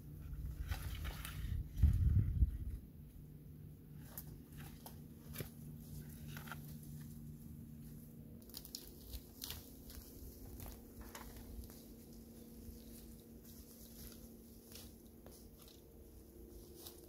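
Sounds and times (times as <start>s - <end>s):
faint low hum: 0.0s - 17.0s
dry leaves crackling: 4.0s - 17.0s.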